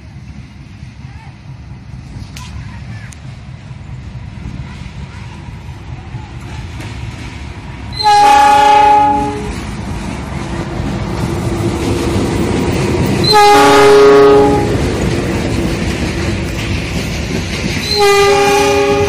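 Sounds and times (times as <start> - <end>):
locomotive engine and wheels rumbling: 0.0 - 19.0
locomotive horn blasts: 8.0 - 9.5, 13.2 - 14.7, 17.8 - 19.0.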